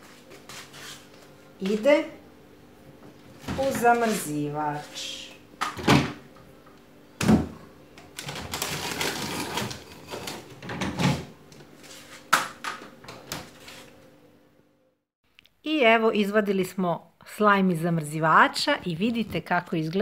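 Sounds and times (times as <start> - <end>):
freezer drawers sliding and scraping: 3.4 - 5.1, 8.2 - 12.3.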